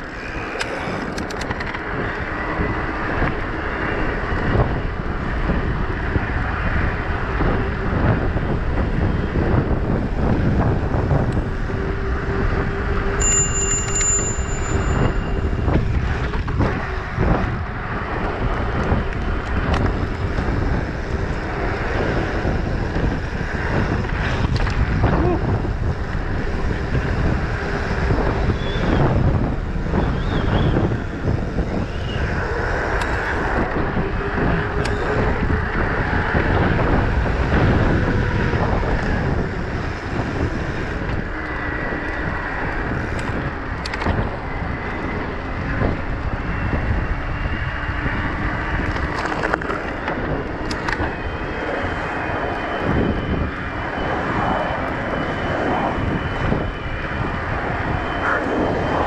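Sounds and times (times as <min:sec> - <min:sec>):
tyres rumbling on path: 0:00.0 - 0:59.0
wind buffeting microphone: 0:00.0 - 0:59.0.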